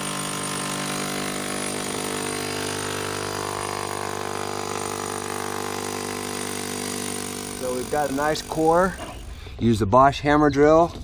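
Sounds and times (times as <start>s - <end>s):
hammer drill cutting through brick: 0.0s - 9.6s.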